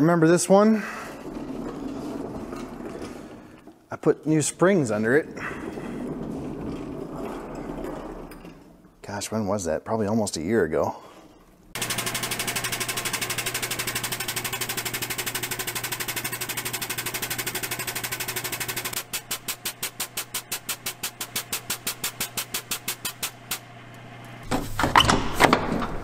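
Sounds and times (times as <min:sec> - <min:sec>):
air-driven jack pump chattering: 0:11.8 - 0:23.7.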